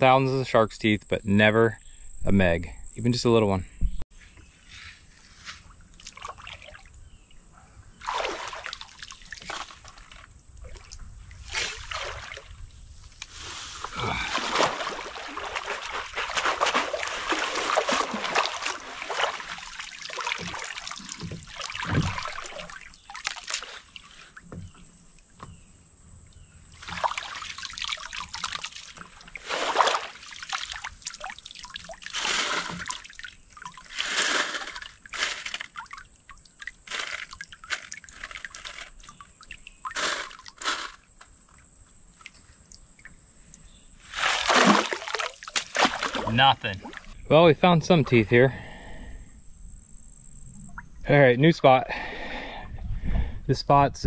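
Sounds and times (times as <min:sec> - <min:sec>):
creek water splashing: 0:05.4 - 0:07.3, 0:07.9 - 0:24.6, 0:26.7 - 0:49.0
water trickling through mesh: 0:08.0 - 0:25.5, 0:26.2 - 0:47.2.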